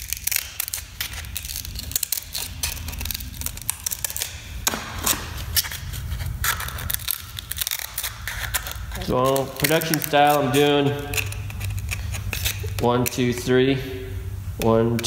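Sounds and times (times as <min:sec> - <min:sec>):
sandpaper crackling: 0:00.0 - 0:13.8
low hum: 0:00.0 - 0:15.0
scissors snipping sandpaper: 0:05.0 - 0:13.6.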